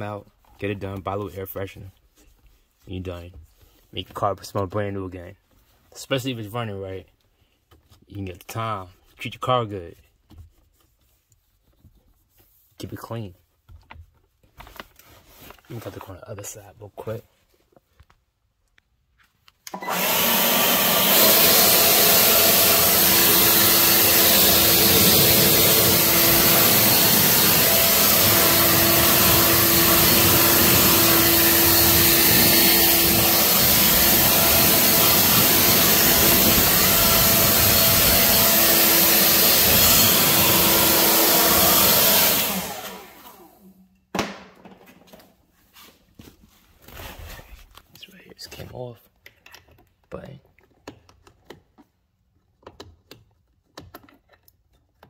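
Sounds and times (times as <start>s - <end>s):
vacuum cleaner running: 19.7s - 43.8s.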